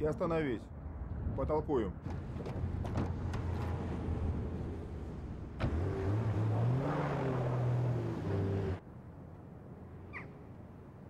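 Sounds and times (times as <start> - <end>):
car engine revving: 5.6 - 8.8.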